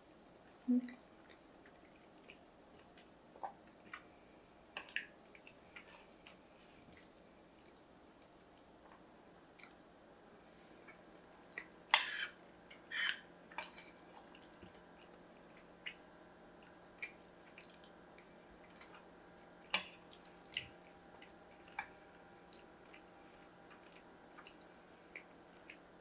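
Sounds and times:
chewing smacks and mouth clicks: 0.9 - 4.1, 4.8 - 9.8, 13.5 - 25.9.

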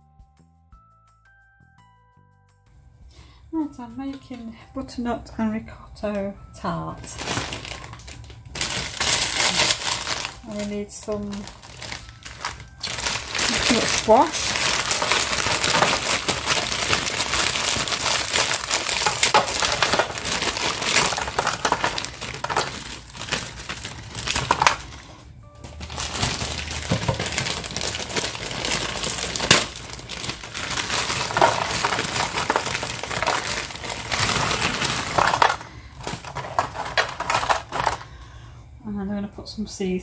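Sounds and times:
frozen cubes clattering on metal tin: 7.0 - 38.2
plastic bag crinkling: 7.0 - 38.2.

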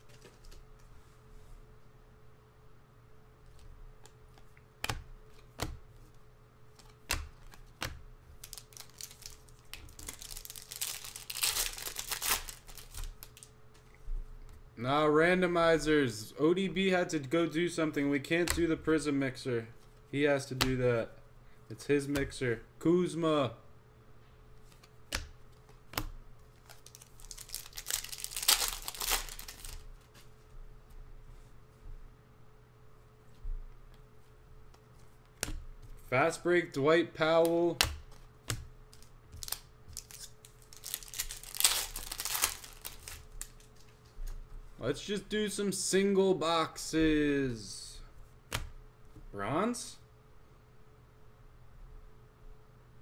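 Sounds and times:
foil card pack crinkling: 8.4 - 13.5, 26.5 - 30.3, 38.9 - 44.2
trading cards clicking: 26.7 - 29.8, 37.4 - 43.9.

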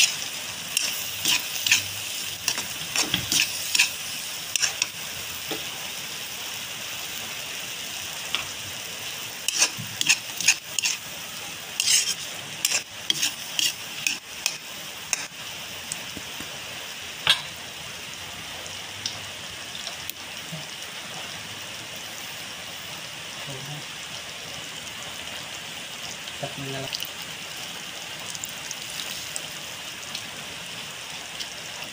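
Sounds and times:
spatula scraping a pan: 0.0 - 4.9, 9.4 - 11.1, 11.8 - 15.3
bubbling sizzle in a wok: 0.0 - 31.9.

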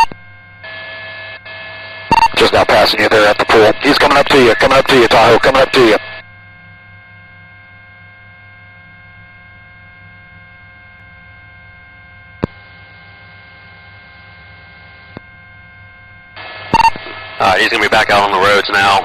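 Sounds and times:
electrical hum with constant tones: 0.0 - 19.0
sharp radio click: 2.1 - 6.1, 12.4 - 12.6, 16.4 - 17.2.

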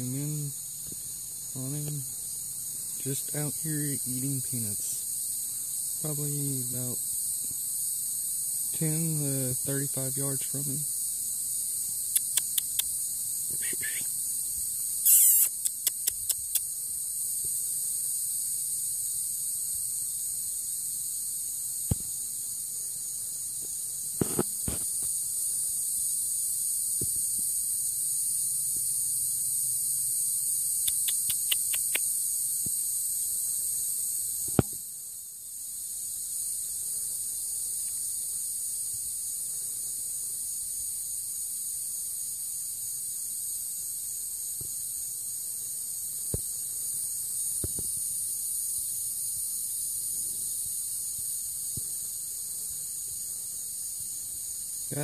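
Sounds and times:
insects chirping: 0.0 - 55.0
quick ticks: 12.1 - 12.9, 15.1 - 16.7, 30.8 - 32.1.

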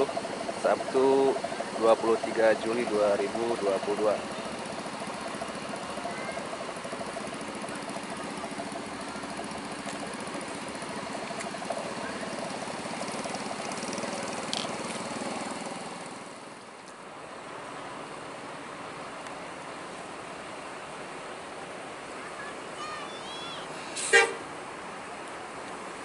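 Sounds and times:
faint voices: 0.0 - 14.9, 22.0 - 24.0
bus diesel engines idling: 0.0 - 26.0.

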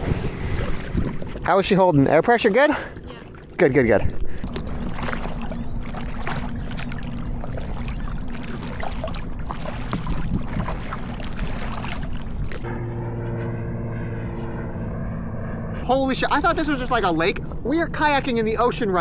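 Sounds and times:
faint engine drone: 0.0 - 19.0
water splashing off paddle: 4.1 - 12.6.

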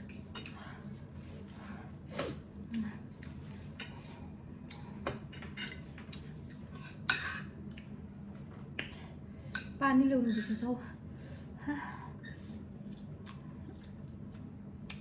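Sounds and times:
chewing and mouth clicks: 12.8 - 15.0.

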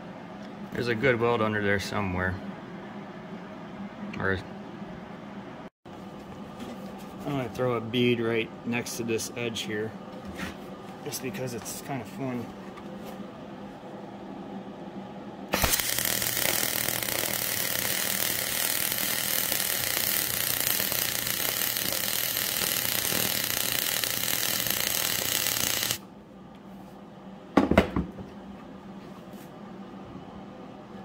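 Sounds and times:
welding arc hissing: 15.5 - 26.0.

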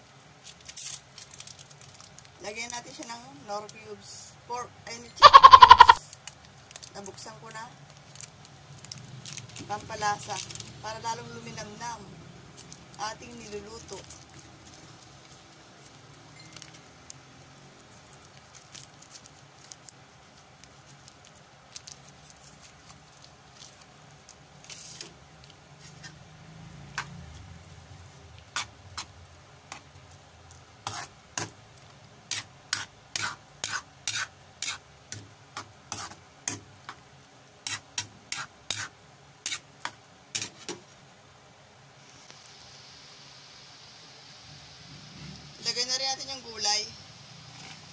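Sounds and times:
noodles simmering with faint sizzle: 0.0 - 47.9
utensil scraping against pan: 5.2 - 6.0, 30.8 - 31.5, 32.3 - 34.8, 35.6 - 36.6, 37.6 - 40.8.

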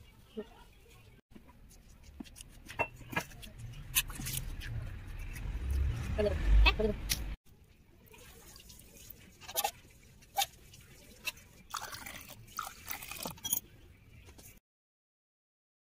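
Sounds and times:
liquid trickling into glasses: 11.0 - 13.6.

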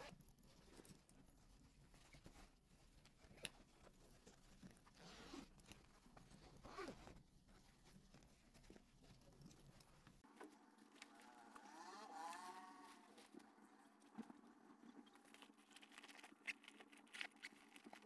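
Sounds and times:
fabric backpack rustling: 0.6 - 13.4
zipper and buckle clicks: 4.8 - 7.2
zipper scraping: 4.8 - 7.2, 11.0 - 13.4.

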